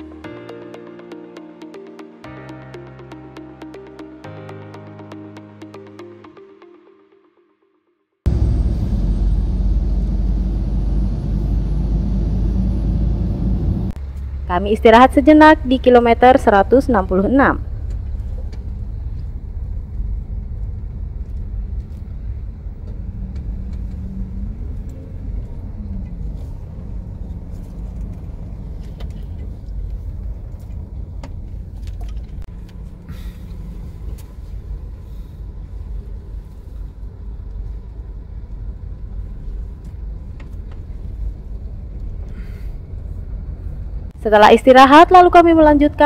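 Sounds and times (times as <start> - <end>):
car engine and tyres rumbling: 8.3 - 44.5.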